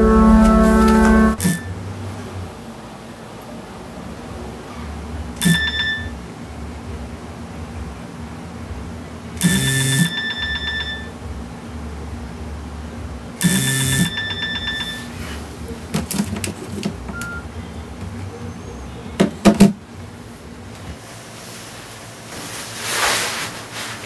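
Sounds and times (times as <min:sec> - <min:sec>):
mobile phone ringing: 0:00.0 - 0:01.4, 0:10.0 - 0:11.1, 0:13.9 - 0:15.1.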